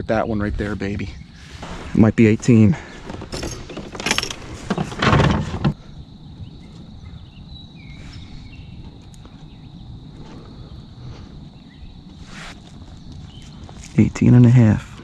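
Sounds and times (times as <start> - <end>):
rustling and knocking: 2.9 - 5.8.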